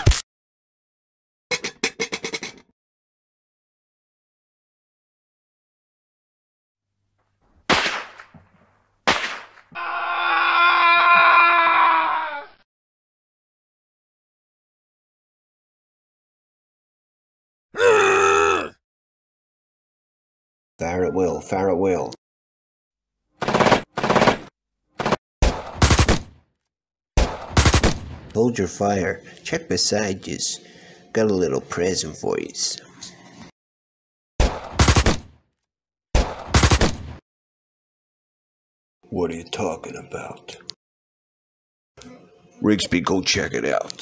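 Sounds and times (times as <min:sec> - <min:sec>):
gunshots: 0:07.7 - 0:08.3, 0:09.1 - 0:09.6, 0:23.4 - 0:26.4, 0:27.2 - 0:28.3, 0:34.4 - 0:35.4, 0:36.2 - 0:37.2
long held cry: 0:09.7 - 0:12.6, 0:17.8 - 0:18.8.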